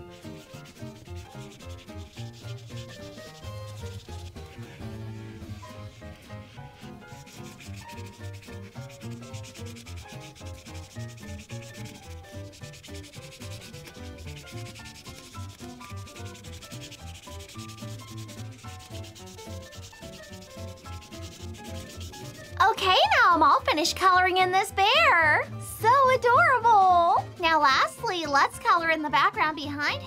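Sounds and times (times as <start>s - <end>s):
background music with bass line: 0.0s - 22.6s
marker rubbing on paper: 0.0s - 22.9s.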